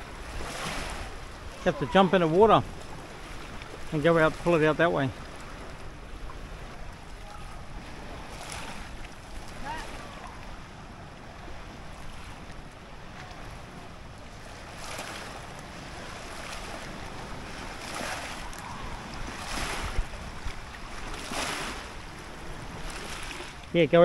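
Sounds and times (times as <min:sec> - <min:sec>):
wind rushing over microphone: 0:05.5 - 0:23.6.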